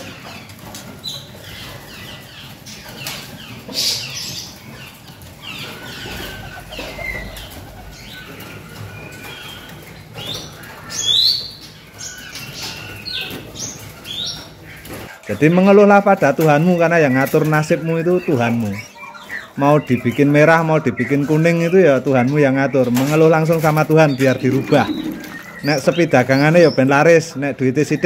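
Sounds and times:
songbirds chirping and whistling: 0.0 - 28.0.

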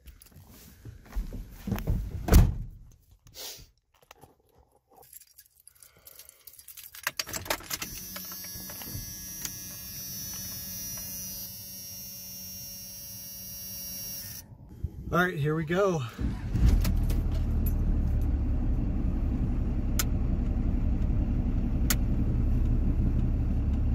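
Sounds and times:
keys rattling: 4.0 - 8.9
diesel engine starting and idling: 15.9 - 23.9.

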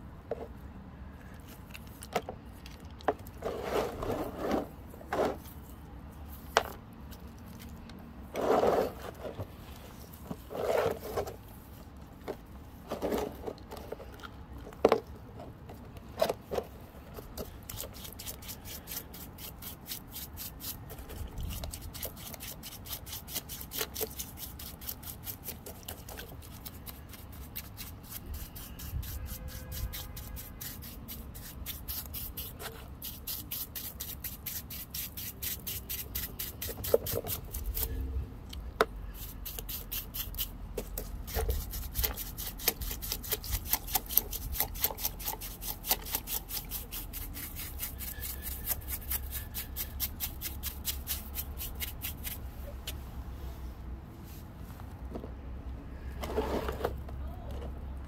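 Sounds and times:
brush scrubbing wet rock: 17.2 - 38.0, 39.1 - 52.5.

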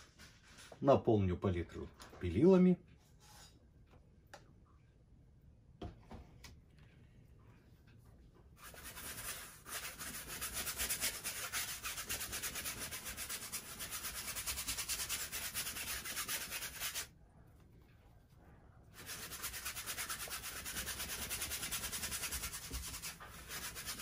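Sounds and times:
brush scrubbing on canvas: 8.6 - 17.1, 19.0 - 24.0.

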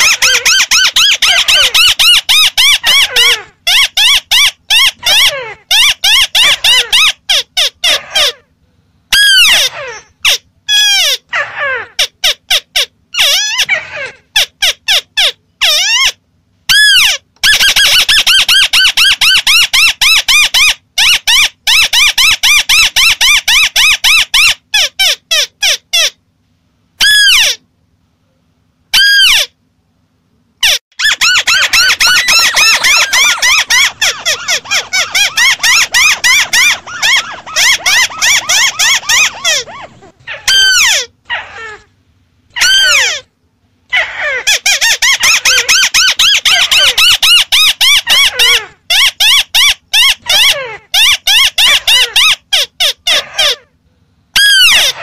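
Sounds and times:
crakes chattering calls: 31.0 - 41.6.

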